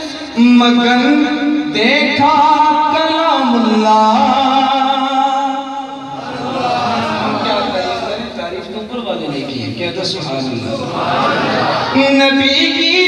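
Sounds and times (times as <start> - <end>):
man singing devotional song: 0.0 - 6.0, 12.0 - 13.0.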